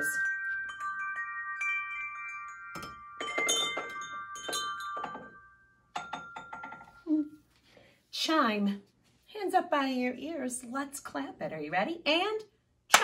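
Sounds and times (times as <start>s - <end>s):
wind chime tubes clinking: 0.0s - 7.1s.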